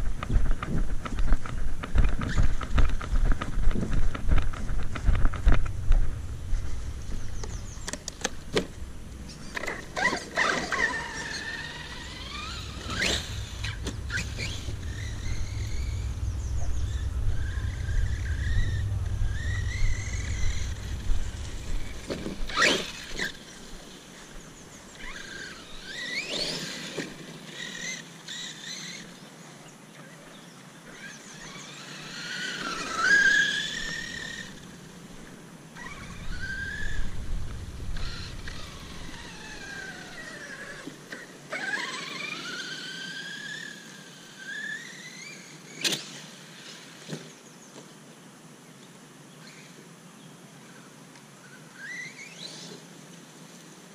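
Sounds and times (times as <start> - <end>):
electric motor whining: 5.3 - 23.7.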